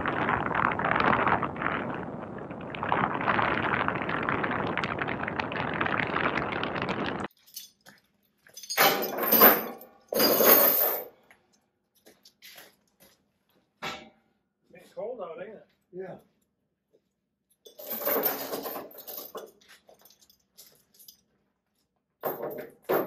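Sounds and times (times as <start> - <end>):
road and wind noise: 0.0 - 7.3.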